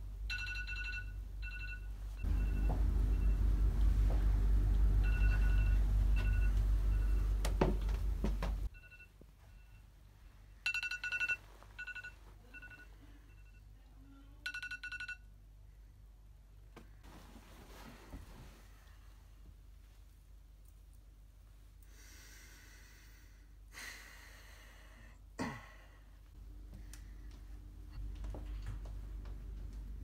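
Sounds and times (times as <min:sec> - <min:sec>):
electronic alarm beeping: 0:00.3 - 0:03.5, 0:05.0 - 0:07.4
loud low hum: 0:02.3 - 0:08.7.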